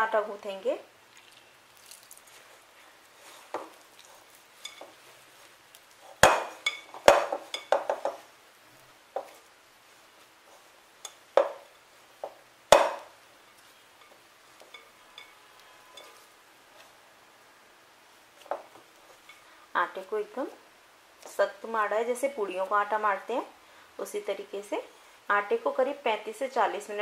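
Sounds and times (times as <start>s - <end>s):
hands kneading dough: 1.1s - 17.0s.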